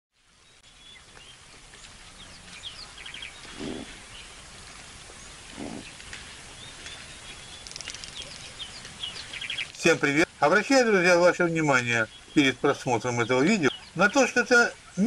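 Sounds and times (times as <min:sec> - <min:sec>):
birds chirping and trilling: 0:00.3 - 0:15.0
short low bird calls: 0:02.1 - 0:04.3, 0:05.2 - 0:10.0.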